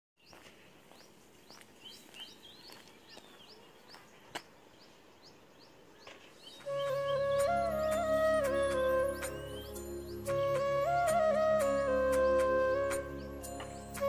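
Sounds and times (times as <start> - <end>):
birds chirping: 0.2 - 14.0
music: 6.7 - 14.0.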